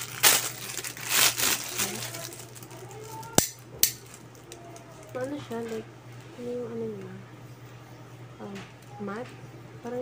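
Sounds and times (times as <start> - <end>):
plastic packaging crinkling and tearing: 0.0 - 5.9.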